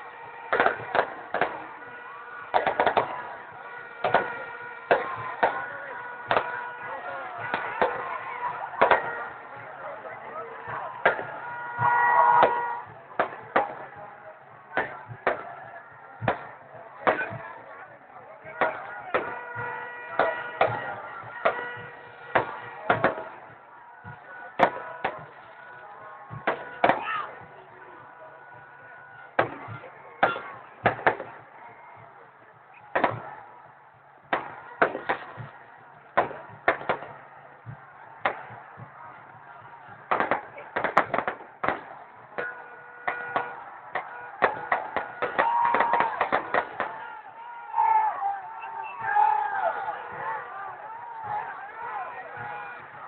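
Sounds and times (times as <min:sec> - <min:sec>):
fireworks bangs: 0:00.0 - 0:53.0
low background din: 0:00.0 - 0:53.0
firecrackers exploding: 0:00.4 - 0:06.7, 0:29.4 - 0:31.5, 0:32.9 - 0:33.4, 0:34.2 - 0:35.5, 0:36.1 - 0:47.0.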